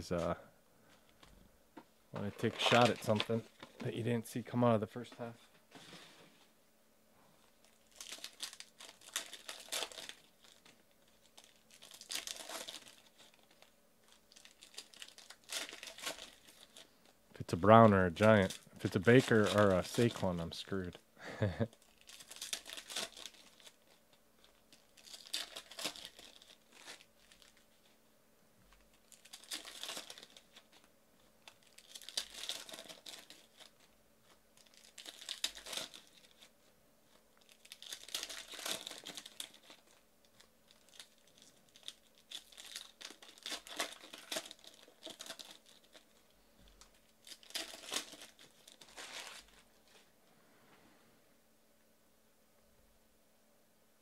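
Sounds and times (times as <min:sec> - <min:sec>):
foil wrappers tearing and crinkling: 0:02.2 - 0:03.9, 0:07.6 - 0:28.0, 0:28.7 - 0:50.0.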